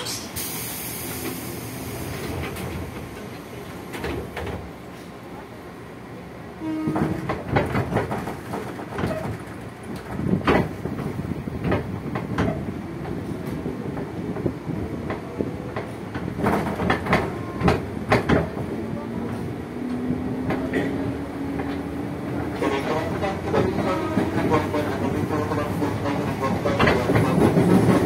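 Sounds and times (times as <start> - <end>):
train wheels rumbling on rails: 0.0 - 28.0
wheels clacking over rail joints: 6.8 - 28.0.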